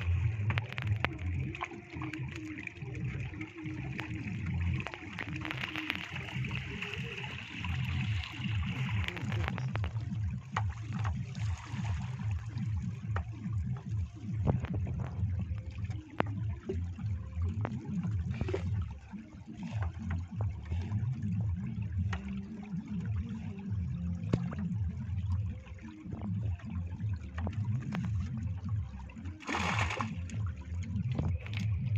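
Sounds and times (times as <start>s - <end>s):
steady low rumble: 0.0s - 31.9s
water trickling and splashing: 0.0s - 31.9s
loud splash: 29.4s - 30.2s.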